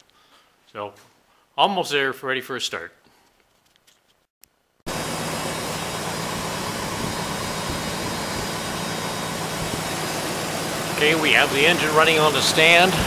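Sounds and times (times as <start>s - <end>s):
rotary engine idling: 4.9s - 13.0s.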